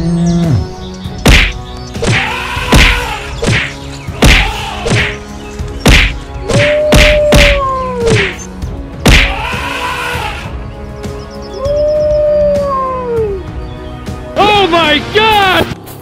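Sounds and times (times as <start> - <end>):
cartoon whacks and thuds: 1.2 - 5.2, 5.8 - 8.4, 9.0 - 9.4
cartoon animal cries: 6.5 - 8.4, 9.2 - 10.5.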